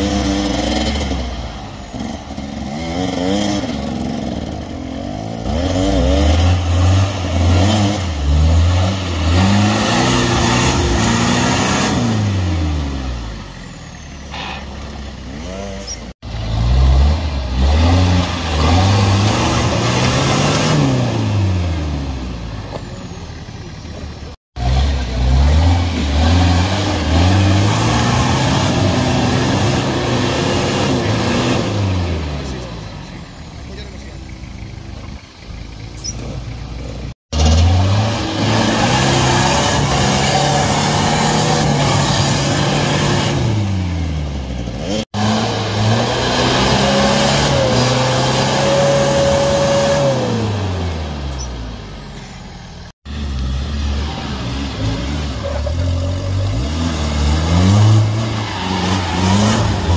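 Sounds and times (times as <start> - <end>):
off-road vehicle engine revving: 0.0 - 59.9.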